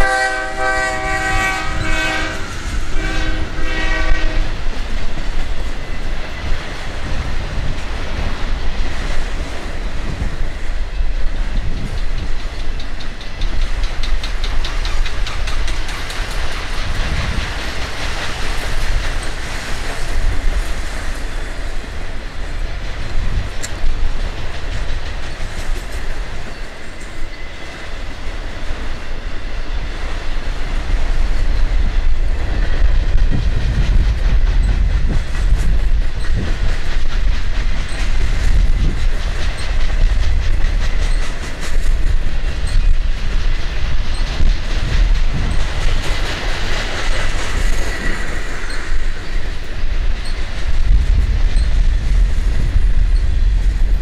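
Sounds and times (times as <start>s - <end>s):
train wheels rumbling on rail: 0.0s - 54.0s
clicking over rail joints: 11.4s - 27.2s.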